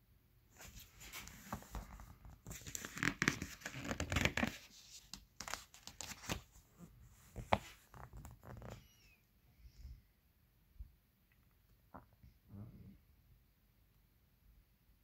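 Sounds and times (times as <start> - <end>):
glossy pages turning: 0.6 - 6.6, 7.3 - 8.8.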